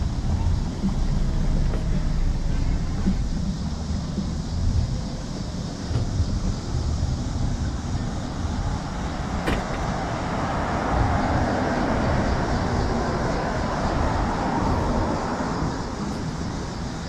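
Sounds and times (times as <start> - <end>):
low rumble: 0.0 - 17.0
car driving past: 5.9 - 17.0.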